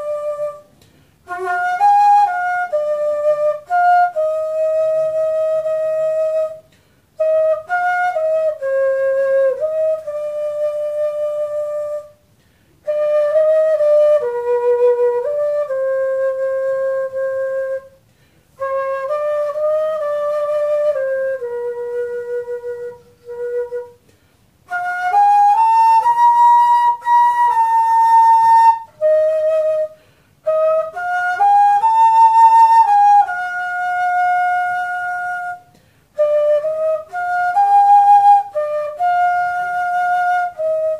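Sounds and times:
flute playing slow melody: 0:00.0 - 0:40.9
airy breath sound: 0:00.7 - 0:01.3, 0:18.0 - 0:18.6, 0:29.9 - 0:30.4, 0:35.7 - 0:36.2.

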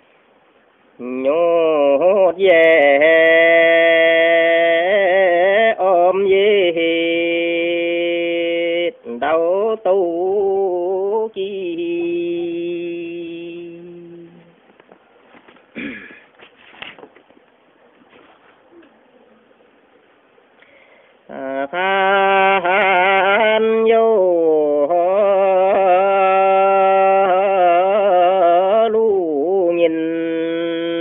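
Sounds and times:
man singing folk song: 0:01.0 - 0:14.6, 0:21.3 - 0:31.0.

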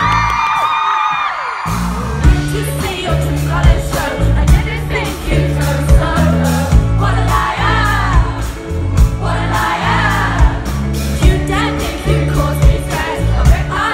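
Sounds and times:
low bass notes: 0:01.7 - 0:13.9
woman singing: 0:02.3 - 0:08.5, 0:11.2 - 0:13.9.

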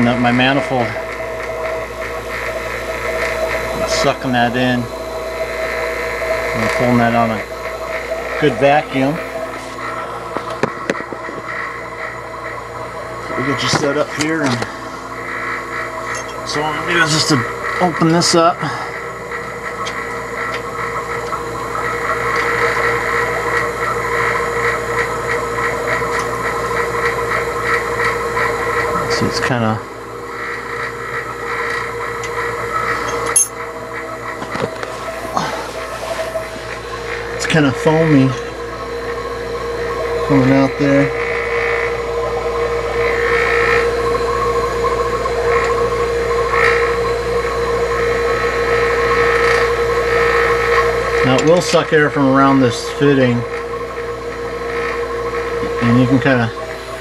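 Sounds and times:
higher-pitched surges: 0:00.0 - 0:44.4
electric vacuum pump running: 0:00.0 - 0:57.0.

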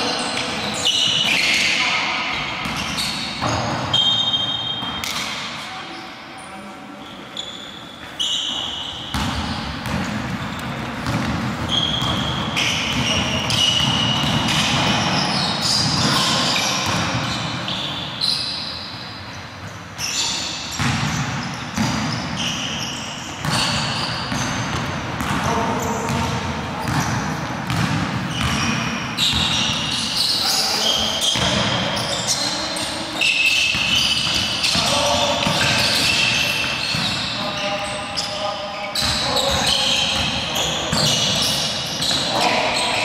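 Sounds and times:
sneakers squeaking: 0:00.0 - 0:43.0
basketball bouncing: 0:09.1 - 0:17.5, 0:20.8 - 0:22.5, 0:23.4 - 0:25.5, 0:26.1 - 0:29.8, 0:33.7 - 0:37.2.

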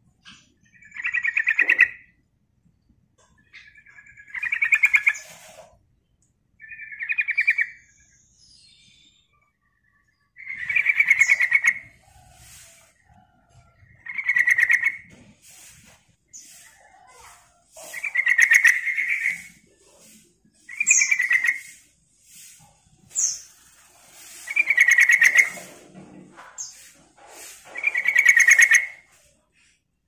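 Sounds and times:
bird chattering song: 0:00.6 - 0:02.2, 0:03.4 - 0:05.5, 0:06.6 - 0:12.0, 0:13.9 - 0:15.1, 0:17.8 - 0:21.8, 0:24.2 - 0:25.7, 0:27.7 - 0:29.0.

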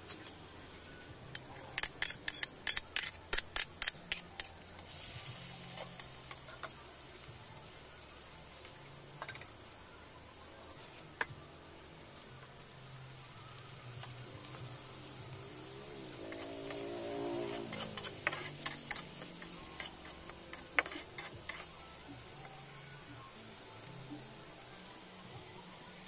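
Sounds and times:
metal spatula scraping wok: 0:00.0 - 0:06.7, 0:16.0 - 0:21.8
scallions sizzling in oil: 0:00.2 - 0:26.0.

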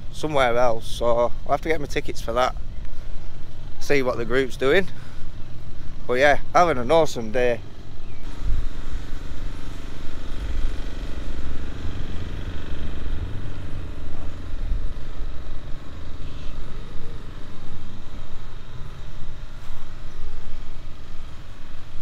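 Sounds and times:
car engine running: 0:07.6 - 0:22.0.

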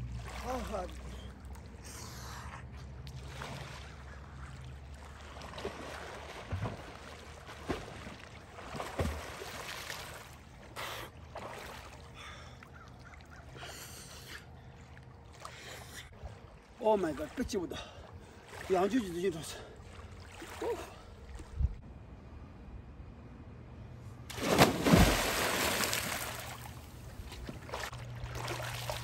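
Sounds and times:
water lapping around swimmer: 0:00.0 - 0:21.8, 0:24.3 - 0:29.0
short sharp splashes: 0:05.2 - 0:10.6, 0:24.3 - 0:29.0.

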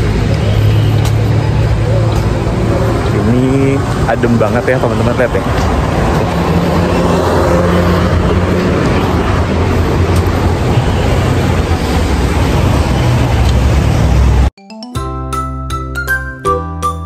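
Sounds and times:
street traffic: 0:00.0 - 0:17.0.

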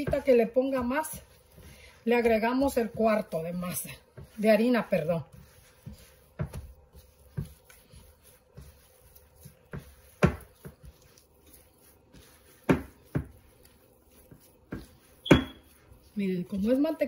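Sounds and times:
dough thumping in a glass bowl: 0:09.4 - 0:11.2, 0:12.5 - 0:13.4, 0:14.2 - 0:15.8.

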